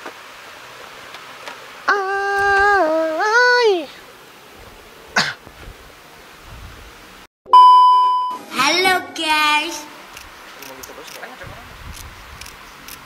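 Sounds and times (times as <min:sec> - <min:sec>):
person crying out high-pitched: 0:01.9 - 0:03.9
steady beep: 0:07.5 - 0:10.0.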